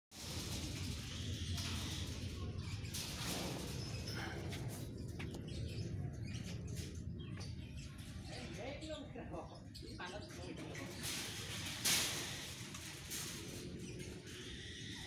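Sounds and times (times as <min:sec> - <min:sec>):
steady low rumble: 0:00.1 - 0:08.5
animals chirping and squeaking: 0:00.2 - 0:15.0.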